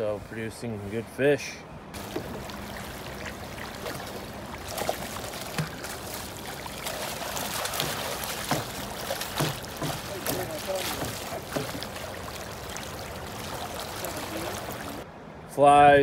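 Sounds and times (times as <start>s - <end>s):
fish splashing at surface: 2.0s - 15.0s
river water rushing: 2.0s - 15.1s.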